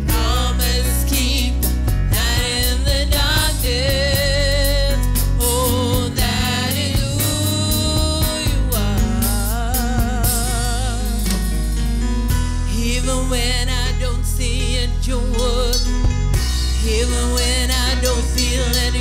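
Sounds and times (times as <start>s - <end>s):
woman singing with vibrato: 0.0s - 11.3s, 16.7s - 19.0s
drum kit: 0.0s - 13.8s, 15.4s - 19.0s
electric bass: 0.0s - 19.0s.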